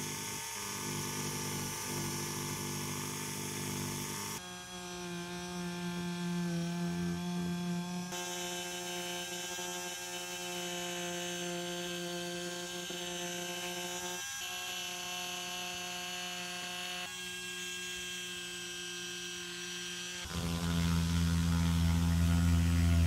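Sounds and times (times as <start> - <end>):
rotary tool sanding leather: 0.0 - 23.0.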